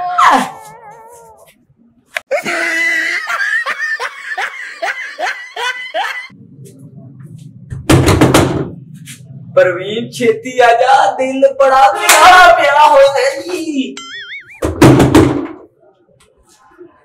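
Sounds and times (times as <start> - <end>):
young man laughing: 2.3 - 6.3.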